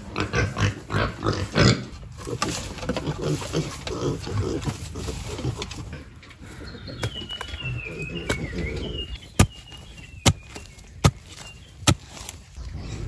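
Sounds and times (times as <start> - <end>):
metal bar jabbing hard soil: 9.4 - 12.4.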